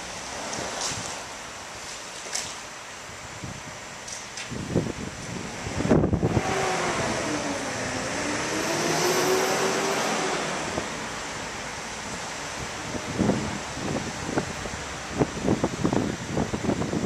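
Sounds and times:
wind rumble on microphone: 0:03.1 - 0:17.0
vehicle passing: 0:05.8 - 0:11.8.

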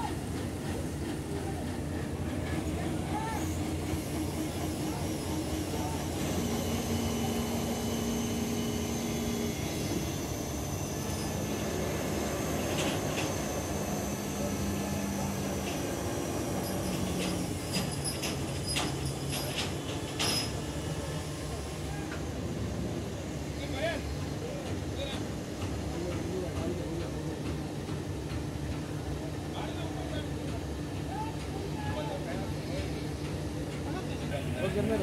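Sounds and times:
crane diesel engine running: 0:00.1 - 0:20.2.

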